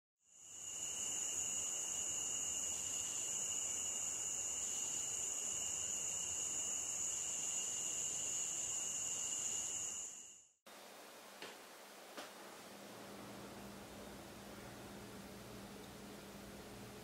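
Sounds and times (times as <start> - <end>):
night insects chirring: 0.2 - 10.6.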